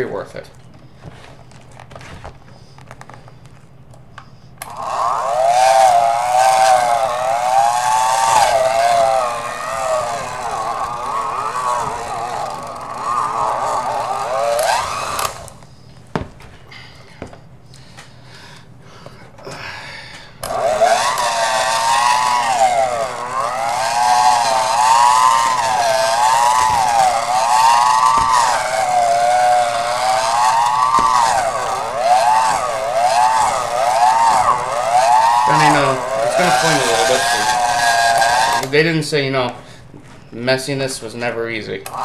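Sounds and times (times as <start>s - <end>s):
electric hand mixer whining: 4.6s - 16.4s, 20.4s - 39.3s.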